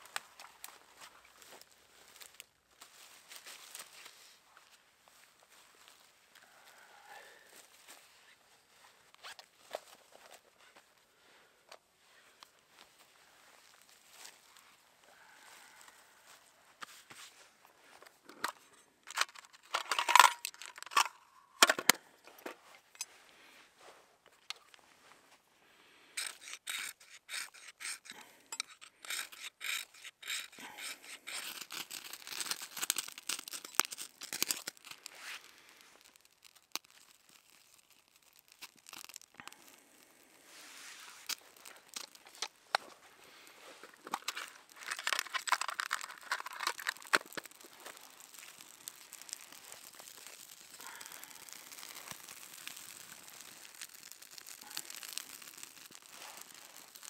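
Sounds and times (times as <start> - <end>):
dry leaves rustling and crunching: 0.1 - 4.4, 29.6 - 57.0
twigs snapping: 26.2 - 39.8, 41.0 - 57.0.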